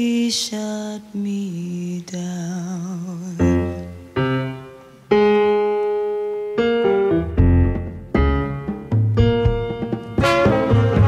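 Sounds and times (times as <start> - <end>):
solo piano chords: 3.4 - 11.0.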